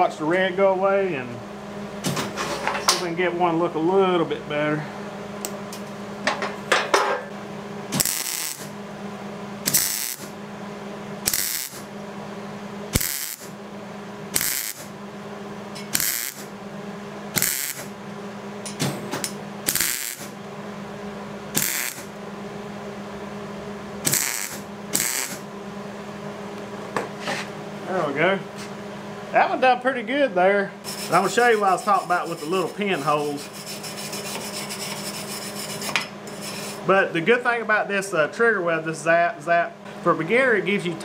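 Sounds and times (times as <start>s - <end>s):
steady low hum: 0.0s - 41.0s
welder arc crackling: 8.0s - 8.7s, 9.7s - 10.3s, 11.3s - 11.9s, 13.0s - 13.5s, 14.4s - 14.9s, 15.9s - 16.5s, 17.4s - 17.9s, 19.7s - 20.4s, 21.6s - 22.1s, 24.0s - 25.4s.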